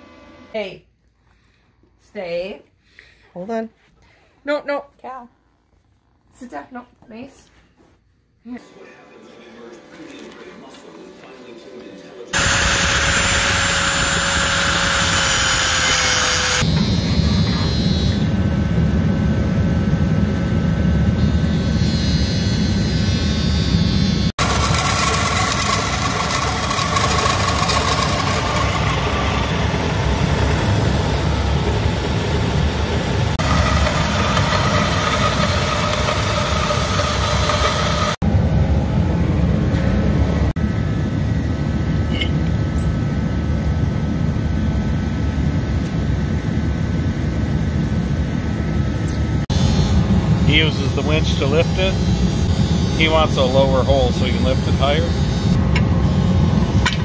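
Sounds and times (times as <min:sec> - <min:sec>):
shop heater blower running: 0:12.3 - 0:57.0
motor whine: 0:12.4 - 0:57.0.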